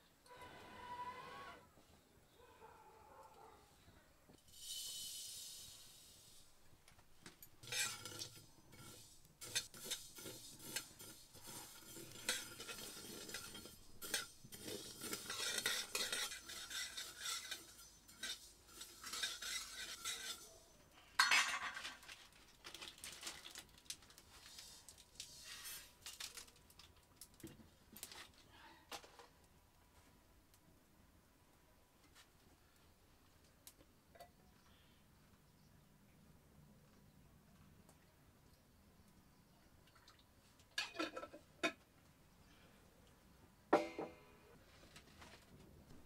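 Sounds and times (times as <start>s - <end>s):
metal spoon scraping a pan: 7.6s - 21.9s.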